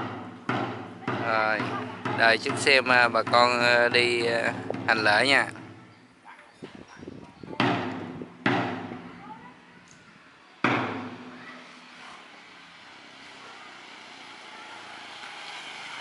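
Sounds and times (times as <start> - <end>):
soft knocks: 0.0 - 5.8, 7.5 - 9.1
loud heavy thuds: 7.5 - 9.2.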